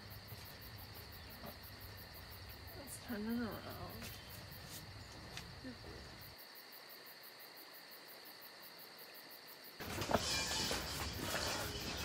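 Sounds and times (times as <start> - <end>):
faint insects chirping: 0.0 - 12.0.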